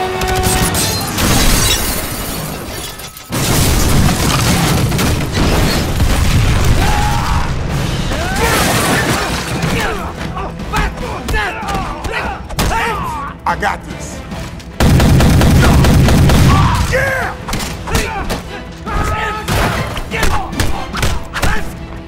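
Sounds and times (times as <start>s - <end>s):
music: 0.0s - 22.0s
debris crashing and shattering: 0.3s - 10.4s.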